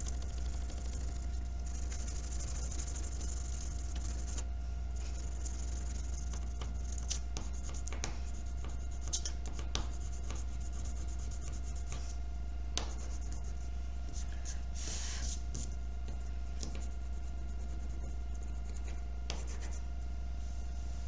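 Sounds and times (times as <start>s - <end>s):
colouring strokes on paper: 0.0s - 12.2s
steady low hum: 0.0s - 21.0s.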